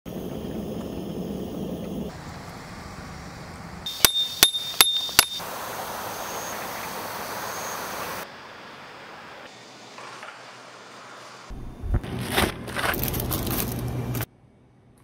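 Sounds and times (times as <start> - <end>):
hammer striking metal tent peg: 3.9 - 5.4.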